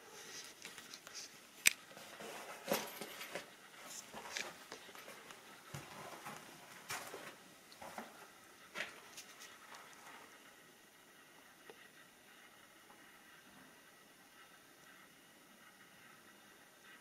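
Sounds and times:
slow footsteps: 0.1 - 10.5.

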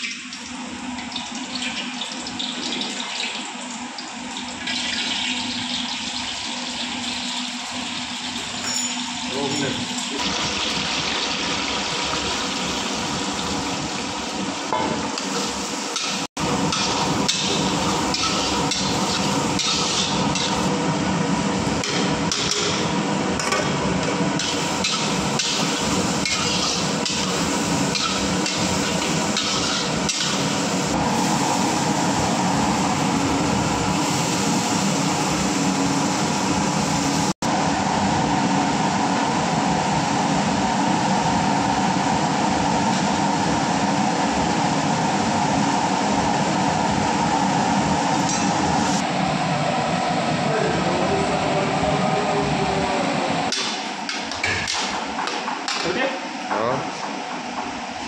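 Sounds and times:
vegetables frying in hot oil: 0.0 - 8.6, 9.3 - 20.8, 24.4 - 37.3.

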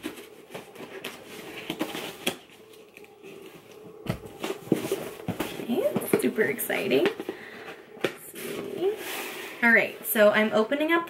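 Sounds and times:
cardboard box rustling: 0.0 - 9.9.

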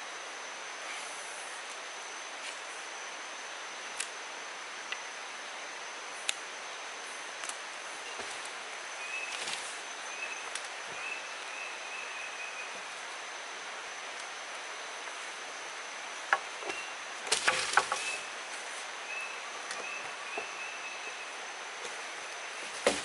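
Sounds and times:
high insect drone: 0.0 - 23.0
thin chirping call: 9.0 - 12.8, 19.0 - 21.4.

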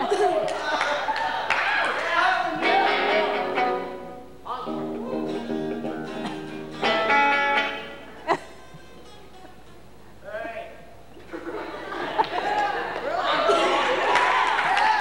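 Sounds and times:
acoustic guitar playing chords: 2.4 - 10.2
electric guitar playing chords: 2.5 - 10.0.

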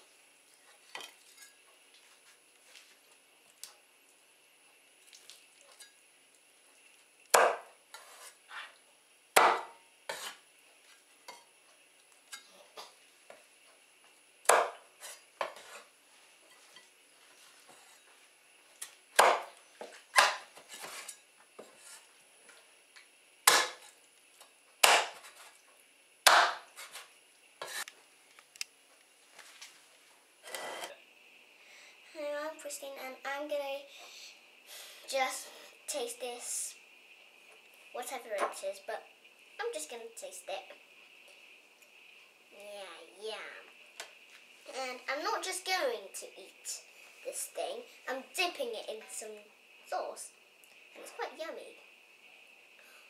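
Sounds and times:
knife chopping on wooden board: 7.3 - 7.7, 9.4 - 10.4, 14.5 - 14.8, 19.2 - 19.5, 20.2 - 21.0, 23.5 - 23.8, 24.8 - 25.3, 26.3 - 26.7.

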